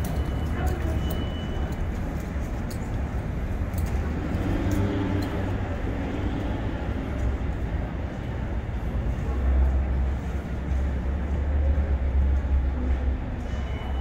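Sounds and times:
subway train rumbling: 0:00.0 - 0:14.0.

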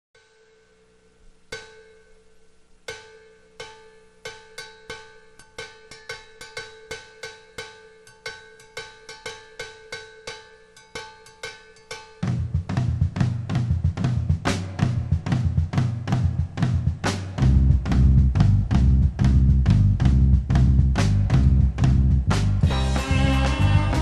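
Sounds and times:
ringing metallic percussion hits: 0:00.2 - 0:17.4.

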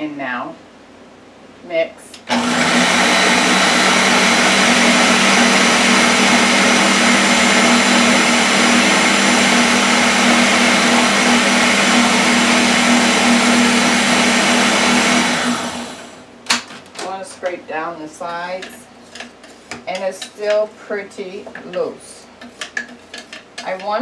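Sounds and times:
blender running: 0:02.2 - 0:16.3.

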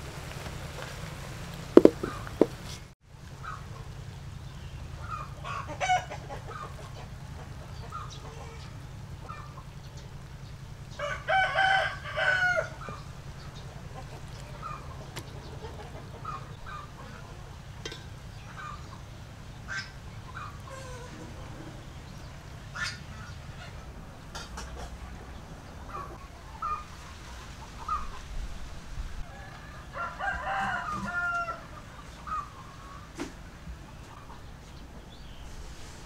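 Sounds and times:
rooster crowing: 0:10.9 - 0:13.1, 0:29.2 - 0:32.4.

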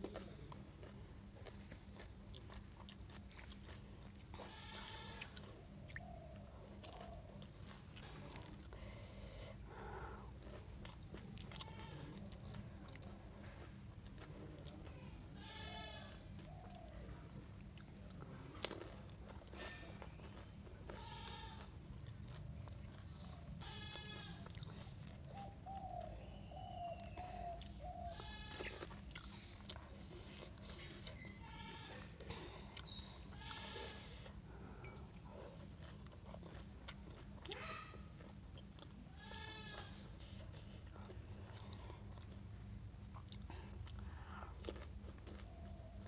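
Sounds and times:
low background hum: 0:00.0 - 0:46.0
farm animal bleating: 0:04.3 - 0:05.4, 0:07.9 - 0:08.6, 0:11.4 - 0:12.3, 0:15.2 - 0:16.4, 0:19.6 - 0:21.8, 0:23.6 - 0:24.8, 0:28.0 - 0:29.0, 0:30.7 - 0:34.2, 0:39.1 - 0:40.1.

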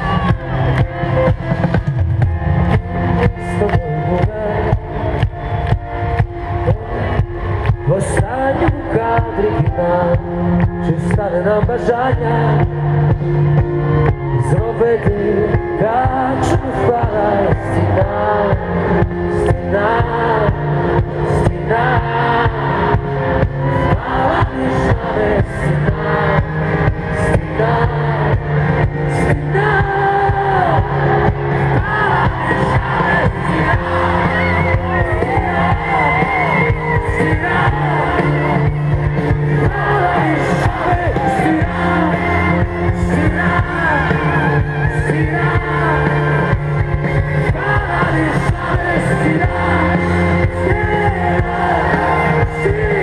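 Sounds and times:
live band music: 0:00.0 - 0:53.0.

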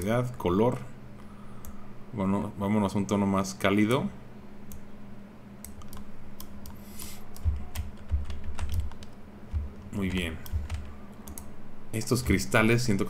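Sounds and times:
steady low hum: 0:00.0 - 0:13.0
keyboard key clicks: 0:07.4 - 0:11.5
low thumps: 0:09.5 - 0:10.8.

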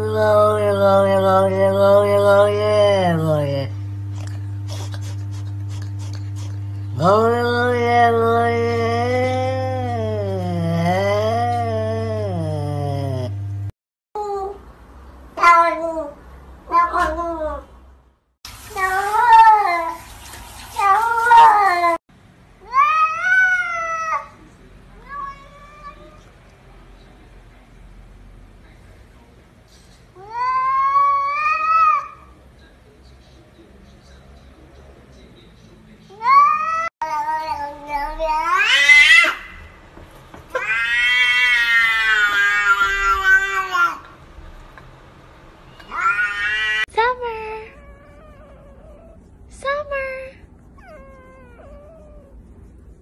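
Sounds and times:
cats meowing: 0:25.0 - 0:26.3, 0:30.2 - 0:32.2, 0:36.1 - 0:39.7, 0:40.5 - 0:44.1, 0:45.8 - 0:46.9.

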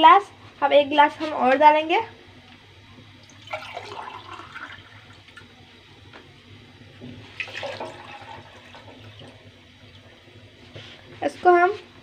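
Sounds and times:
water pouring into saucepan: 0:03.1 - 0:05.7, 0:06.7 - 0:10.4.

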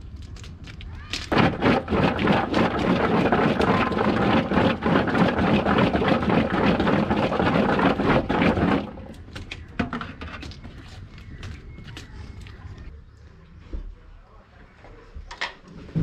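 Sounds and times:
water splashing through colander: 0:00.0 - 0:09.6.

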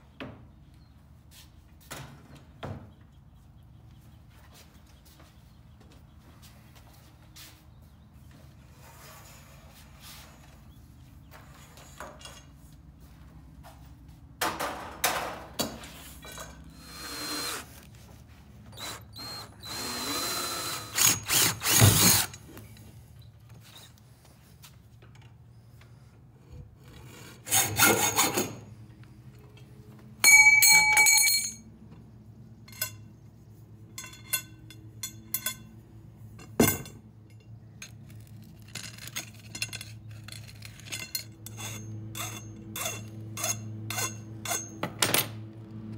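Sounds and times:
power drill bursts: 0:16.7 - 0:17.7, 0:18.7 - 0:22.4
hacksaw cutting metal pipe: 0:18.8 - 0:22.4, 0:27.0 - 0:28.6, 0:40.6 - 0:44.9
ringing metal clang: 0:30.2 - 0:31.7.

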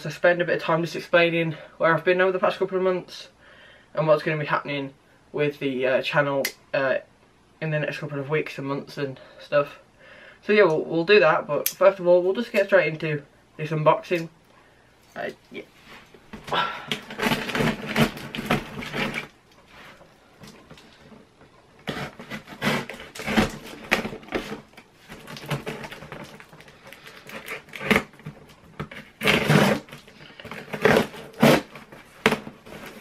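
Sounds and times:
cardboard scraping and rustling: 0:15.8 - 0:33.0
packing tape being cut: 0:16.9 - 0:19.3, 0:21.8 - 0:33.0.

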